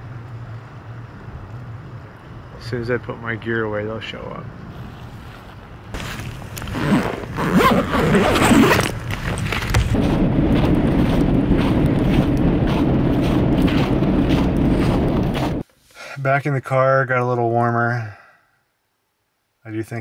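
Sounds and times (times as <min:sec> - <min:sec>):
wind on microphone: 0:04.7 - 0:15.6
jacket fabric rustling on microphone: 0:04.7 - 0:16.0.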